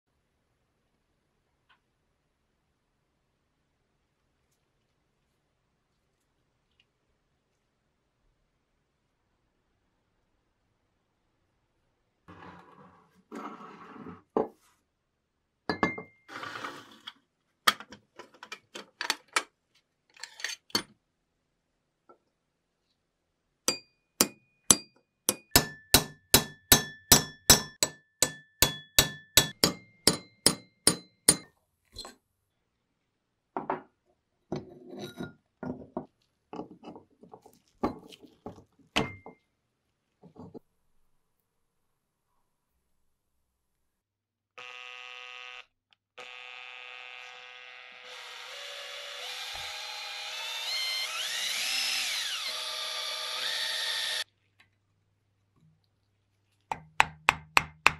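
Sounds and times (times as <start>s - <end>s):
axe head clinking and scraping: 20.2s - 20.9s
hammer striking metal punch: 23.7s - 31.5s.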